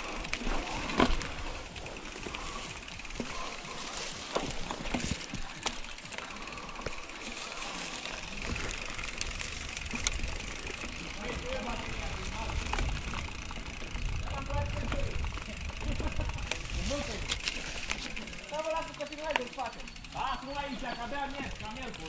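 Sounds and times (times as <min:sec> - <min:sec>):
bike rattles and clicks: 0:00.0 - 0:22.0
tyre and wind noise: 0:08.0 - 0:18.4.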